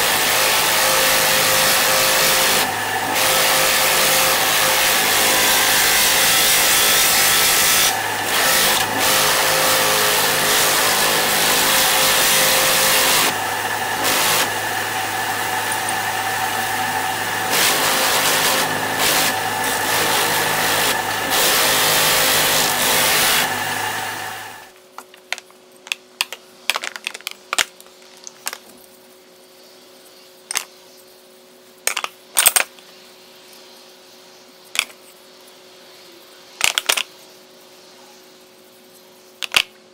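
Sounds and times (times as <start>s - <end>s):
bench sander sanding wood: 0.0s - 24.7s.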